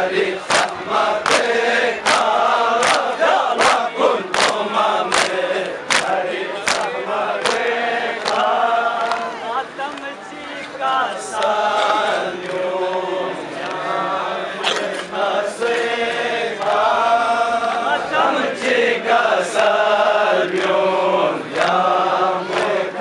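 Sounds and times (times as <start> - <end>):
men chanting: 0.0 - 23.0
hands slapping chests: 0.5 - 7.6.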